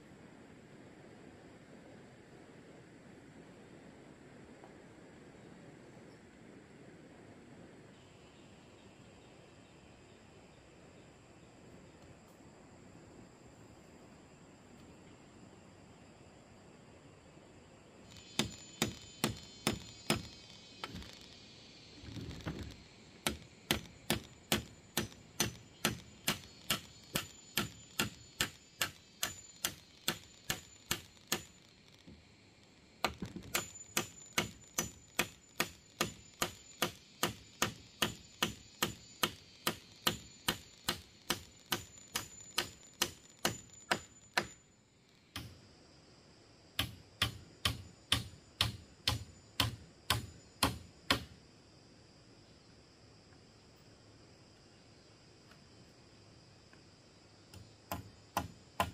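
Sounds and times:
blade chopping wood: 18.2 - 21.2, 23.2 - 31.5, 33.0 - 44.6, 57.9 - 58.9.

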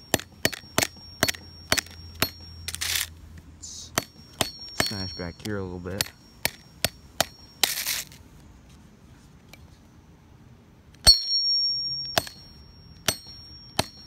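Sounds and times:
hard hammer blow ringing metallically: 0.0 - 2.8, 3.6 - 7.8, 11.0 - 14.0
hammer tapping phone on pavement: 0.0 - 3.0, 3.9 - 8.0, 11.0 - 14.0
gritty scrape: 7.6 - 9.3.

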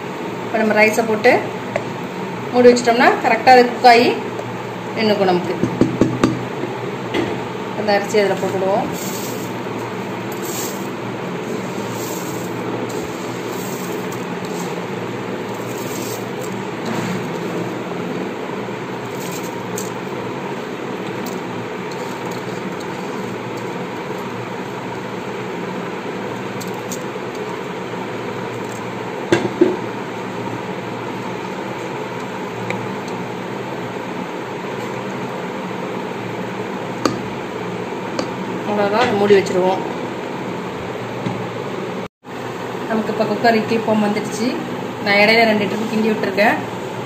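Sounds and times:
spoon stirring in pot: 8.5 - 16.8.

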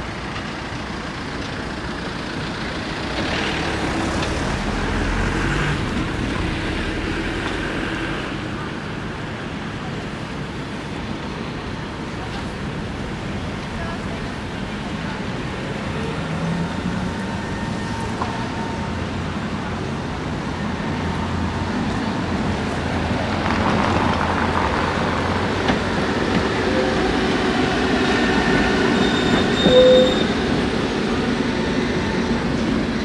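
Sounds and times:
tram rolling on track: 0.0 - 33.0
tram wheel squeal: 15.9 - 19.3, 24.4 - 32.4.

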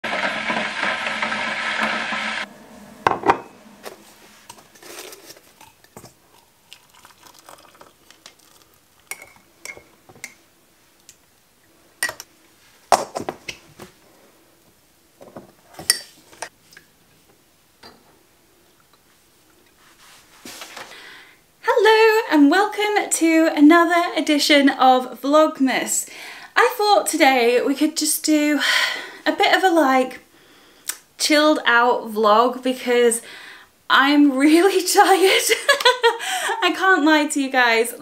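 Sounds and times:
kettle switching off: 0.0 - 4.6
electric kettle boiling: 0.0 - 10.4
ceramic mugs clinking: 5.6 - 10.4, 12.0 - 12.3.

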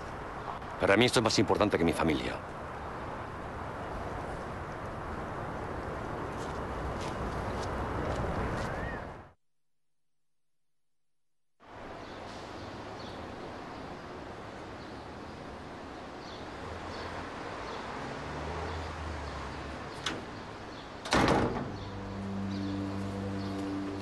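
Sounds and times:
door shutting thump: 21.1 - 21.8.

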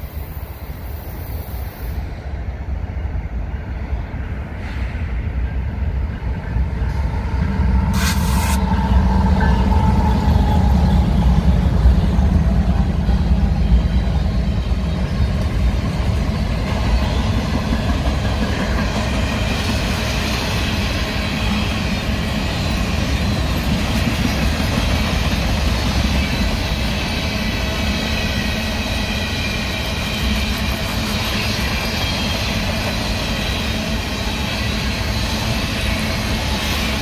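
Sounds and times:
rail cars rolling over rails: 0.0 - 37.0
short hiss: 7.9 - 8.6.

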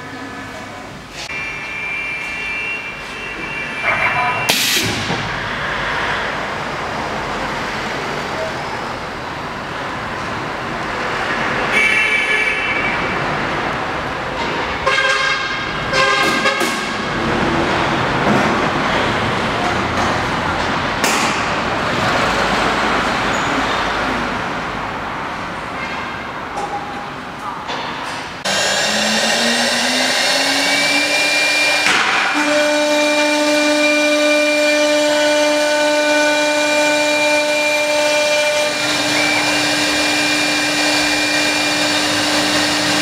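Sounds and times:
high-pitched tone: 1.2 - 5.1
lathe cutter shaving spinning wood: 38.4 - 43.0.

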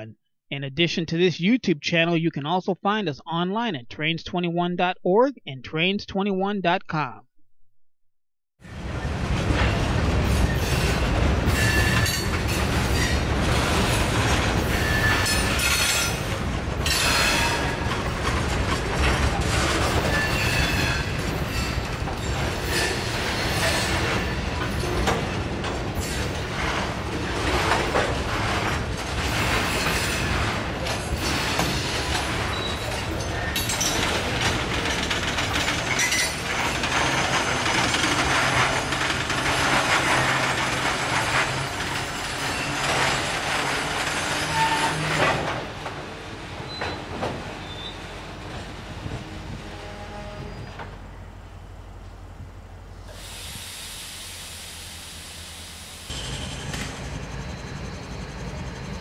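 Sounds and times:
train wheels rumbling on rail: 8.6 - 59.0
wheels clacking over rail joints: 9.4 - 47.8
high wheel squeals: 10.4 - 13.2, 14.6 - 16.2, 19.9 - 25.1, 31.1 - 34.1, 35.8 - 39.1, 41.4 - 45.4, 46.6 - 48.1.

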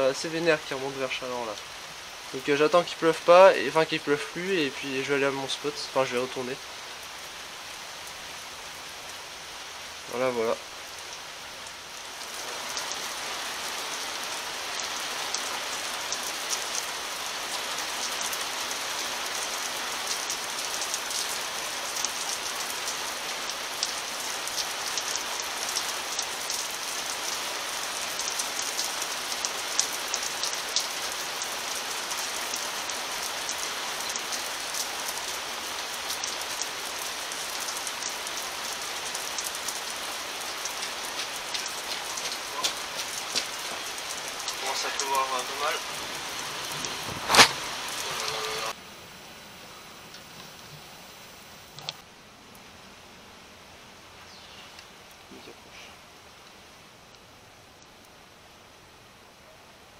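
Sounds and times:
steady rain falling: 0.0 - 59.9
raindrops ticking: 13.7 - 48.8.

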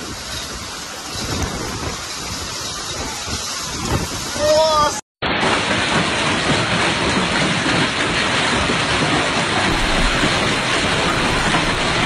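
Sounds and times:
hail falling on pavement and cars: 5.4 - 12.0.

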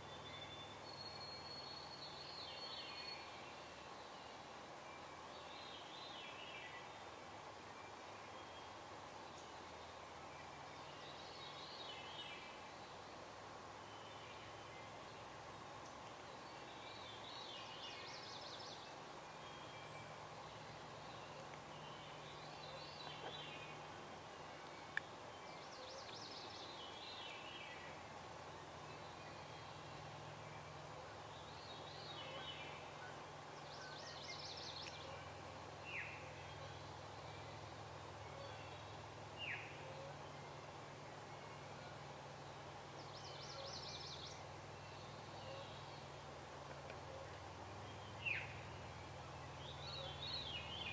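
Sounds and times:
faint songbirds singing: 0.0 - 50.9
birds calling: 14.4 - 41.2.

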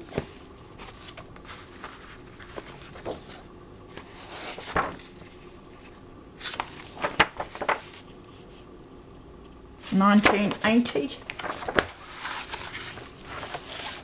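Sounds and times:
book pages turning: 0.0 - 8.2, 9.8 - 14.0.

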